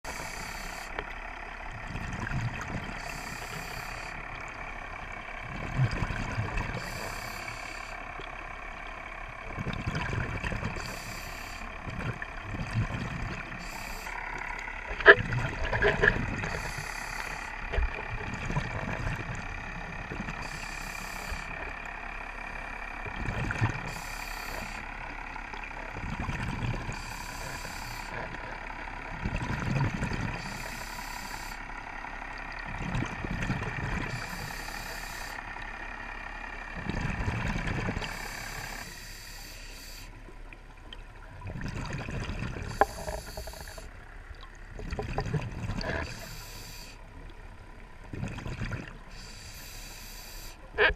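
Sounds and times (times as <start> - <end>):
regulator breath hiss: 0.1 - 1.0, 3.0 - 4.2, 6.8 - 8.0, 10.8 - 11.7, 13.5 - 14.2, 16.5 - 17.6, 20.4 - 21.6, 23.8 - 24.9, 27.0 - 28.2, 30.4 - 31.8, 34.1 - 35.4, 38.1 - 40.2, 42.7 - 43.9, 46.0 - 47.0, 49.1 - 50.7
low bubbling exhale: 41.4 - 47.0.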